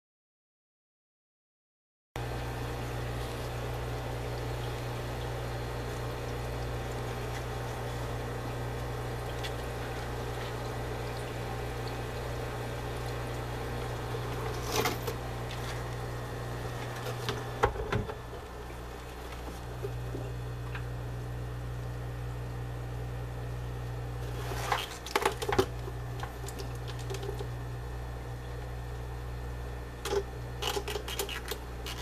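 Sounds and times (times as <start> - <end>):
water bubbling: 2.2 - 21.4
aquarium equipment hum: 2.2 - 32.0
splashing in tank: 24.2 - 27.4.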